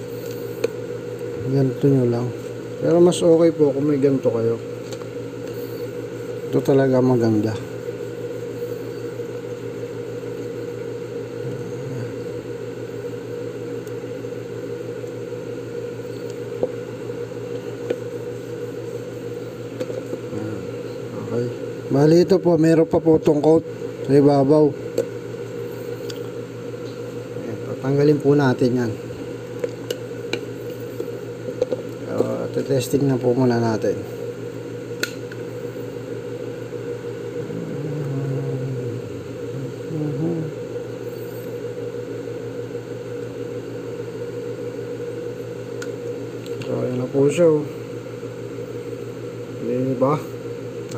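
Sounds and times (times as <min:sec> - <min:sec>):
low background hum: 0:00.0 - 0:50.9.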